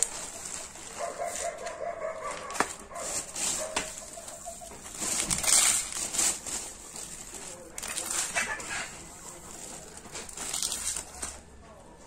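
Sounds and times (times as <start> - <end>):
plastic bags rustling: 0.0 - 12.0
bird calling: 4.0 - 4.8.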